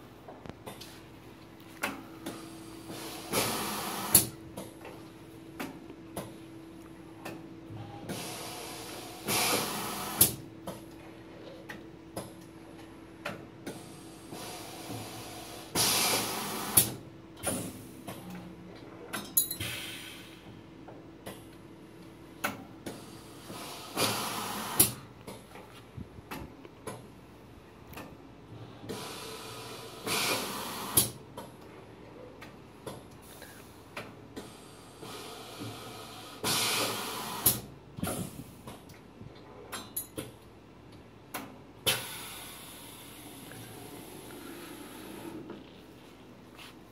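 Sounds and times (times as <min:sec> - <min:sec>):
pneumatic air hiss: 0:02.3 - 0:04.4, 0:08.1 - 0:10.4, 0:13.7 - 0:17.8, 0:19.6 - 0:20.5, 0:22.9 - 0:25.0, 0:28.9 - 0:31.2, 0:34.4 - 0:38.6, 0:41.9 - 0:45.5.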